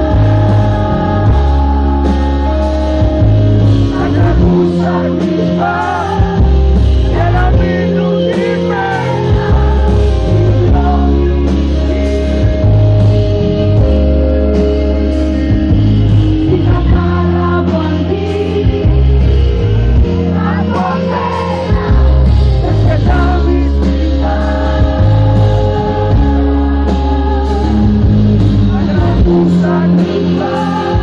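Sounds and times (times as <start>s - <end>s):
live band playing: 0.0s - 31.0s
woman singing: 16.5s - 19.4s.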